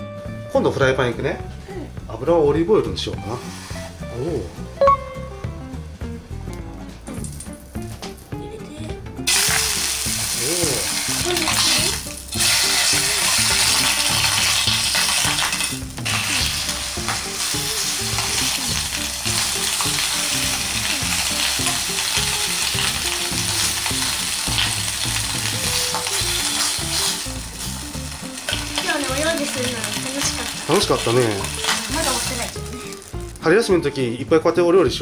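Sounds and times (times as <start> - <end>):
bacon sizzling in a frying pan: 3.2 - 4.0, 9.2 - 34.6.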